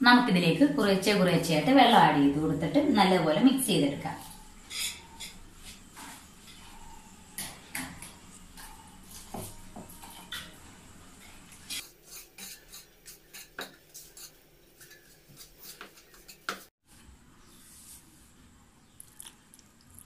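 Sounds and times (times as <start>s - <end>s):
whisk scraping plastic bowl: 11.8s - 16.7s.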